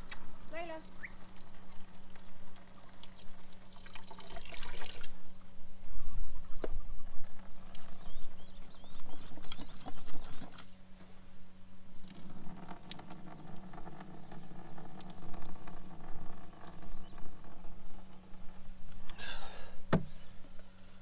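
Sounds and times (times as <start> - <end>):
water pouring into sink: 3.0 - 5.2.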